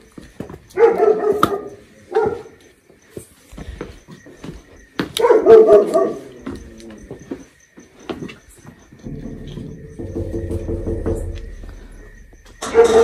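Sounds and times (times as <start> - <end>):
dog barking: 0.7 - 2.6, 5.2 - 6.6, 12.6 - 13.0.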